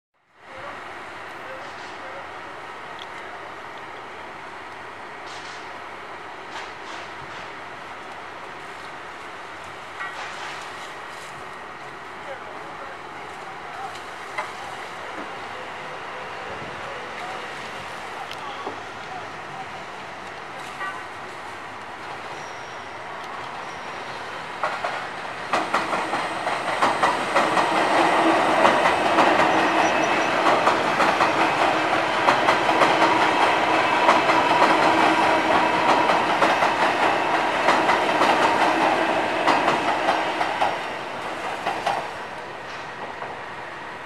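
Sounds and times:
train humming: 0.4 - 44.0
train wheels clacking over rail joints: 24.6 - 43.4.

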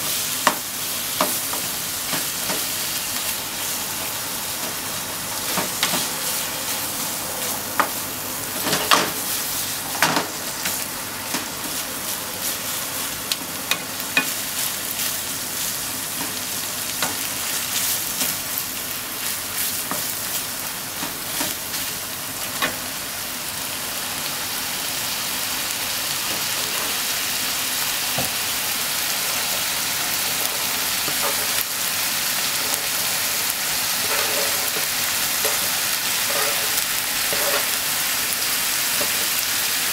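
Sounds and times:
meat sizzling in a frying pan: 0.0 - 39.9
spatula scraping and knocking pan: 34.0 - 37.8.

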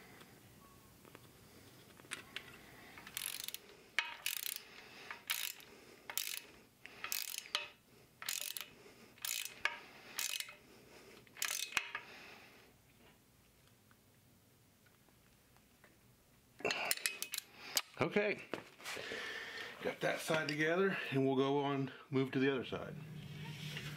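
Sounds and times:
ratcheting wrench clicking: 3.0 - 10.6, 11.3 - 12.0, 16.9 - 17.5.

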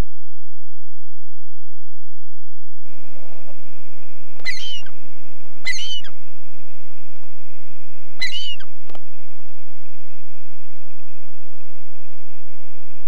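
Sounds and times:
gull calling: 4.4 - 5.0, 5.6 - 6.2, 8.2 - 8.7.

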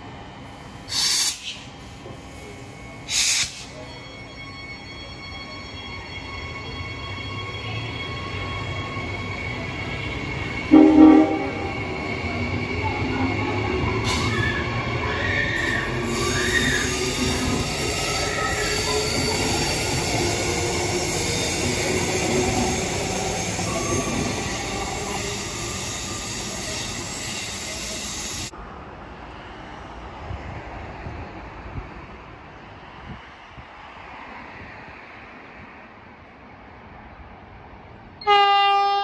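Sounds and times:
electric train rumbling past: 0.0 - 39.0
train horn blast: 10.7 - 11.7, 38.2 - 39.0.

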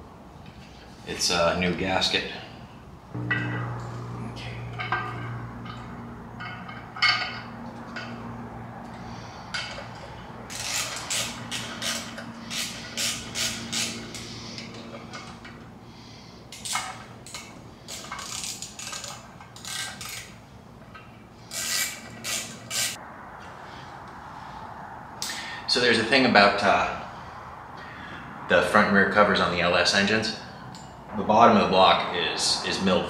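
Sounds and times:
low steady hum: 2.7 - 19.4
hand ratchet clicking: 10.5 - 15.4, 16.6 - 20.4, 21.5 - 23.0.

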